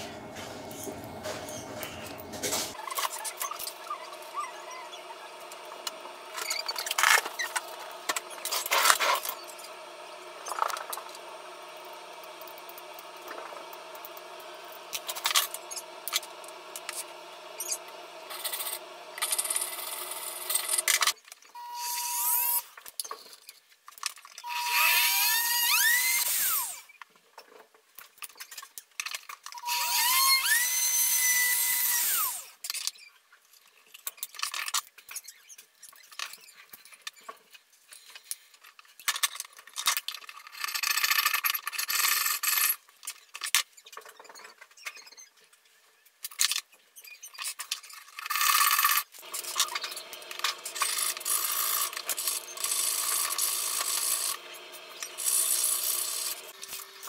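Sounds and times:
low motor with grinding hiss: 0.0s - 2.8s, 3.6s - 21.0s
rotary tool whining: 0.0s - 23.5s, 24.2s - 27.0s, 29.5s - 32.6s, 47.0s - 57.0s.

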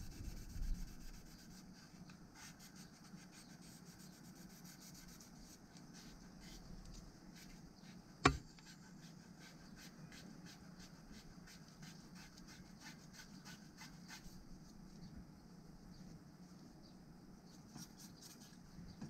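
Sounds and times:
scratchy rubbing strokes: 0.0s - 14.9s.

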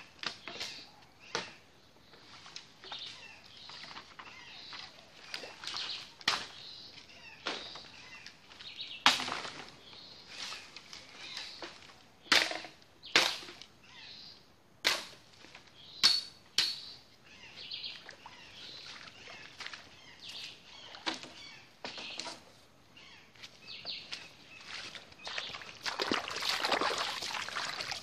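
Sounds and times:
leaves rustling: 2.0s - 12.2s, 17.3s - 28.0s.

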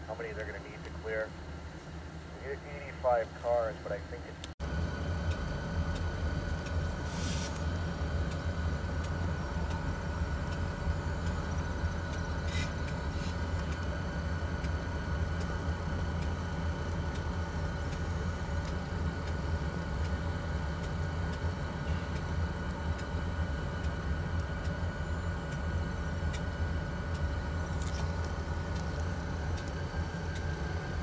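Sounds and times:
engines idling: 0.0s - 31.0s
faint steady whine: 0.0s - 31.0s
light ticks: 5.3s - 6.8s, 17.0s - 20.2s, 22.1s - 23.2s, 23.8s - 24.8s, 26.3s - 30.5s.

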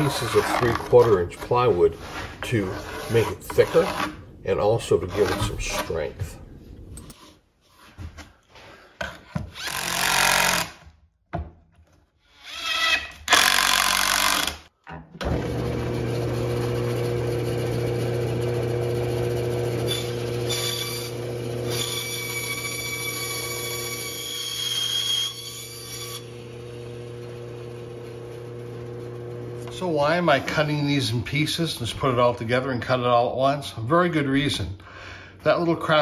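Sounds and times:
bandsaw humming: 0.0s - 6.0s, 15.4s - 29.8s
saw blade cutting plywood: 0.0s - 6.1s, 12.2s - 14.6s, 19.8s - 27.2s
power tool bursts: 9.6s - 10.8s, 13.2s - 14.7s.

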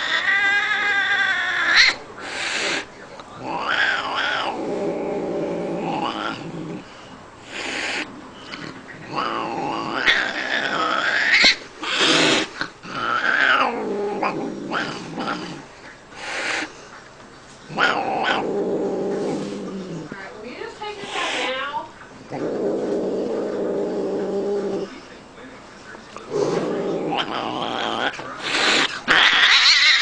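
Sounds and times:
cat yowling and growling: 0.0s - 6.8s, 9.1s - 15.6s, 17.7s - 20.2s, 26.3s - 30.0s
cat hissing: 0.0s - 16.9s, 17.7s - 20.2s, 20.8s - 25.0s, 26.2s - 30.0s.

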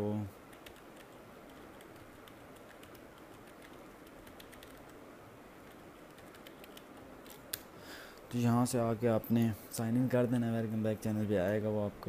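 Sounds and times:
low steady hiss: 0.0s - 12.0s
keyboard typing: 0.5s - 5.0s, 5.6s - 7.6s.

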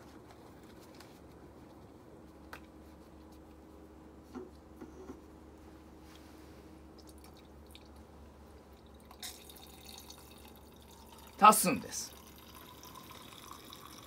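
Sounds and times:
low steady hum: 0.0s - 14.0s
water dripping and trickling: 8.7s - 14.0s.

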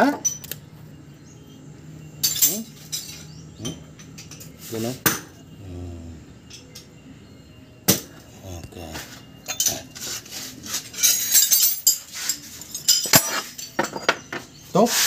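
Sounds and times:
metal tools clinking and knocking: 0.0s - 0.7s, 2.2s - 5.5s, 6.4s - 7.1s, 7.9s - 14.8s.

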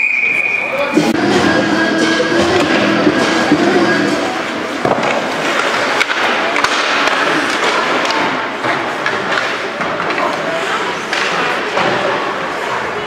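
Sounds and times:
steady background noise: 0.0s - 13.0s
hockey sticks and puck clacking: 1.1s - 12.7s.

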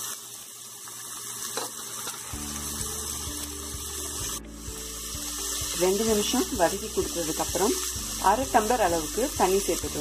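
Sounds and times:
food sizzling in hot oil: 0.0s - 10.0s
background music: 2.3s - 10.0s.

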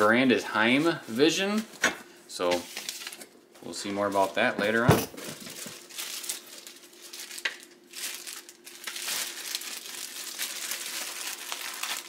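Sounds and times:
plastic bag crinkling: 5.3s - 12.0s.

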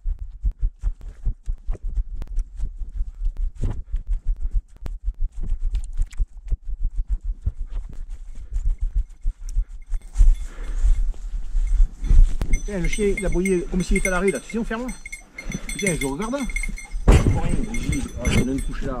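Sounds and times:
heavy thumps on microphone: 16.9s - 18.5s.

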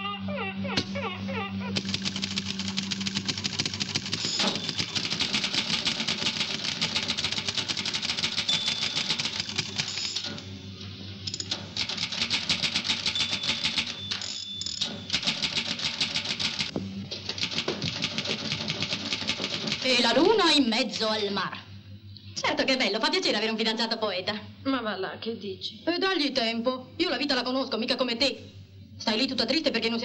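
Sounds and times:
manual typewriter key strikes: 1.8s - 10.4s, 11.3s - 16.7s, 17.3s - 20.0s.

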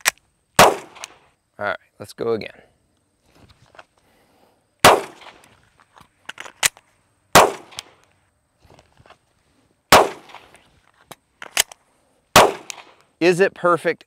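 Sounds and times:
handgun shots: 0.0s - 1.2s, 4.8s - 5.4s, 7.4s - 8.0s, 9.9s - 10.5s, 12.4s - 13.0s
magazine clicks and clacks: 0.8s - 1.2s, 5.0s - 6.8s, 7.6s - 8.1s, 10.0s - 11.8s, 12.4s - 13.1s.

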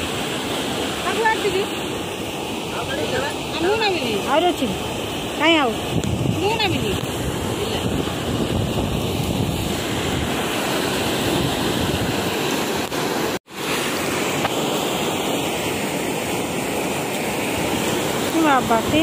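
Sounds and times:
water flowing past concrete: 0.0s - 19.0s
wind buffeting microphone: 2.8s - 13.0s, 16.2s - 19.0s.

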